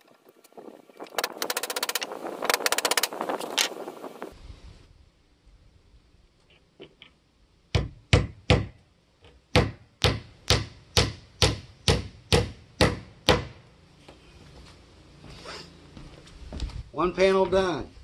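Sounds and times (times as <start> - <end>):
hammer driving nails into wood: 7.8 - 13.6.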